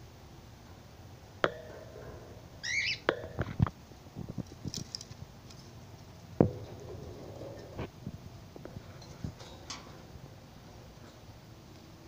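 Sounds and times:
pet bird chirp: 2.6 - 3.1.

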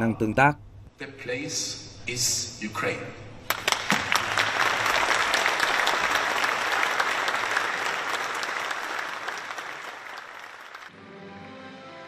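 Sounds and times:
audience applauding: 3.5 - 10.9.

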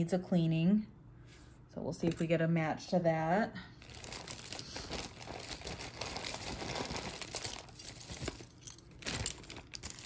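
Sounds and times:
packaging crinkling and rustling: 3.8 - 10.0.

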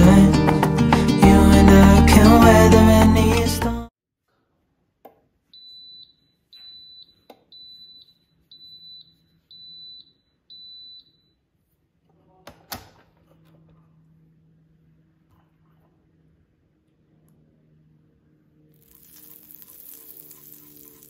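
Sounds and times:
waffle maker beeping: 18.8 - 21.0.

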